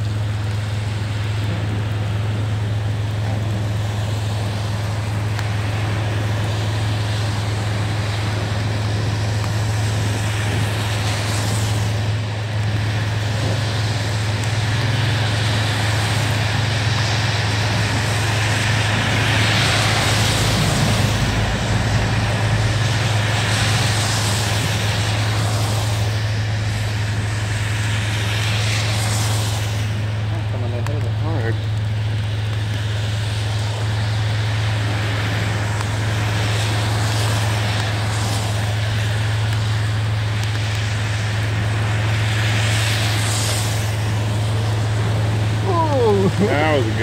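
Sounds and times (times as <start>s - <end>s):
steady low hum: 0.0s - 47.0s
tyres hissing through water: 0.0s - 47.0s.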